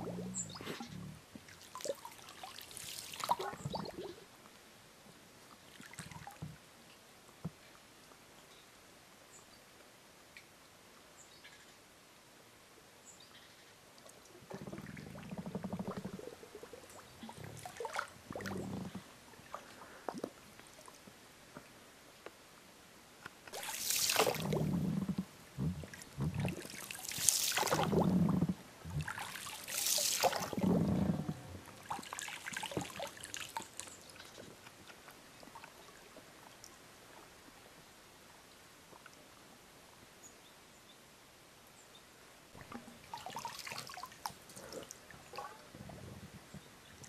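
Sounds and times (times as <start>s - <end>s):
water splashing and trickling: 0.0s - 4.4s, 5.5s - 6.6s, 14.0s - 21.2s, 23.4s - 37.5s, 42.5s - 47.0s.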